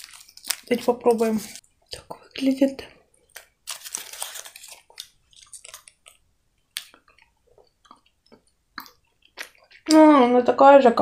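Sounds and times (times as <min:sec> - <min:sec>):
chewing candy: 0:03.2 - 0:10.0.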